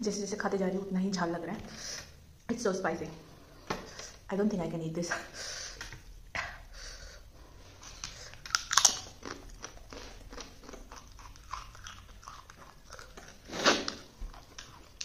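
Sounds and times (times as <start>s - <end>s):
person chewing crunchy food: 7.6s - 15.0s.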